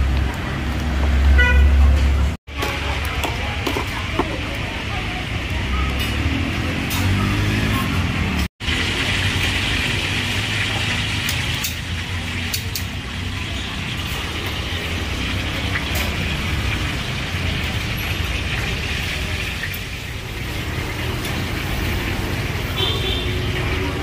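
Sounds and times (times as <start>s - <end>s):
traffic rumble: 0.0s - 24.0s.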